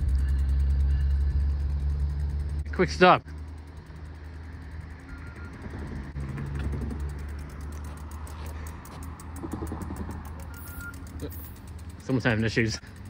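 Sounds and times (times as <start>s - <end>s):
low rumble: 0.0s - 10.4s
bicycle freewheel ticking: 0.0s - 13.0s.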